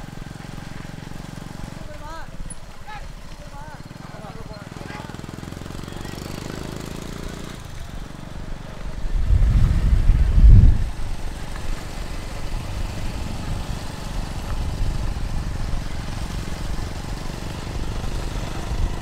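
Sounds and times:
motorcycle and vehicle engines rumbling: 0.0s - 19.0s.

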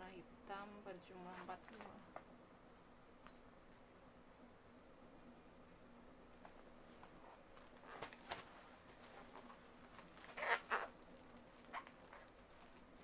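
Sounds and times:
faint plastic crinkling: 0.5s - 2.3s, 6.4s - 13.0s.

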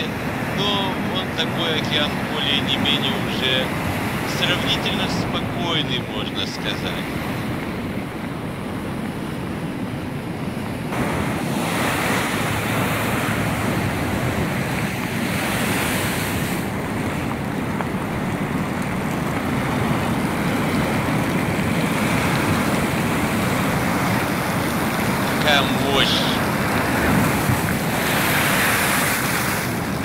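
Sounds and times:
wind buffeting microphone: 0.0s - 30.0s
surf breaking against a seawall: 10.9s - 30.0s.

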